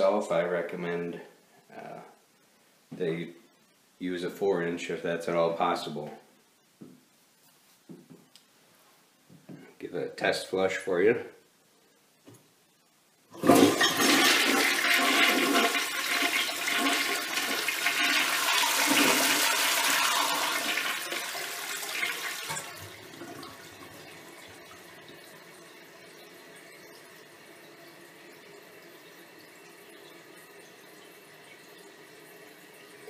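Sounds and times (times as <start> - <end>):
toilet flushing water rush: 13.3 - 33.0
water hiss of tank refilling: 13.4 - 33.0.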